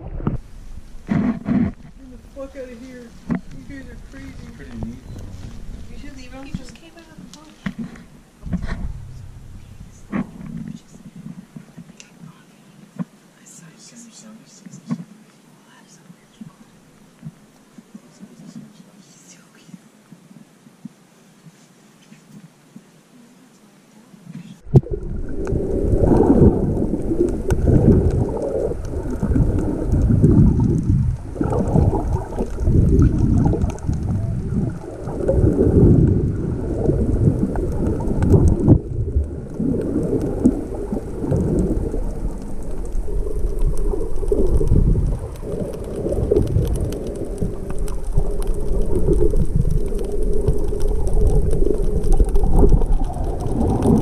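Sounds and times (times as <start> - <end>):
underwater rumble and sloshing: 0.0 - 12.0, 24.6 - 54.0.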